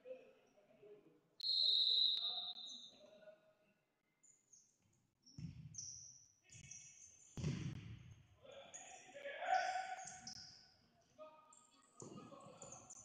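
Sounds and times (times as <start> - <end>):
ball kicked and bouncing on floor: 5.4 - 5.8, 7.4 - 8.0.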